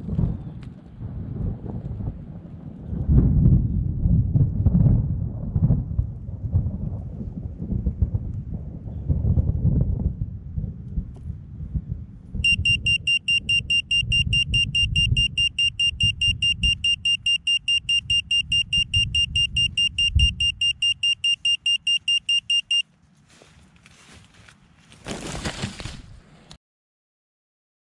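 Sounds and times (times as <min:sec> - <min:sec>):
wind rumble on microphone: 0:00.0 - 0:17.0, 0:17.9 - 0:20.8
high-pitched buzzer beeping: 0:12.4 - 0:22.8.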